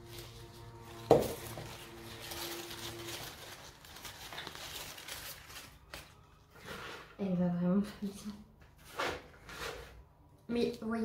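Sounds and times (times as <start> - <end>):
soil and plant pot rustling: 0.0 - 7.6.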